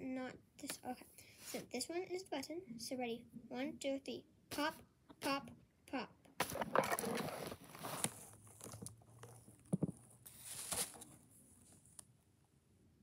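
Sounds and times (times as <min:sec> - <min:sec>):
paper rustling and handling: 0:06.4 - 0:11.9.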